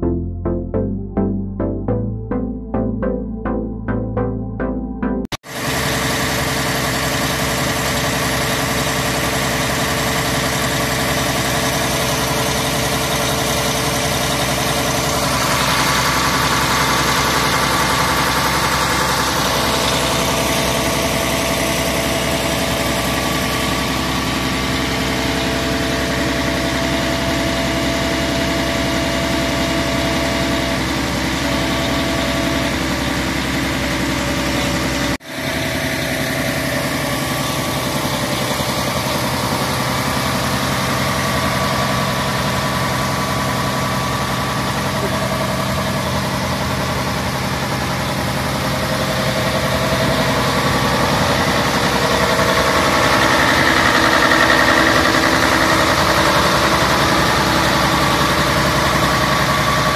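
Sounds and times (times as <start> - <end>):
diesel engine idling: 0.0 - 59.9.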